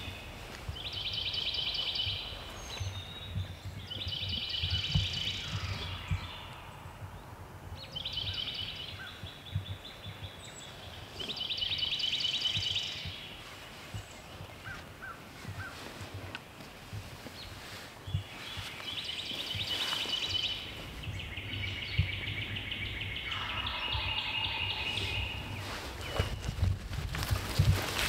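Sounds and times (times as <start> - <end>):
songbird trilling: 18.9 - 26.6.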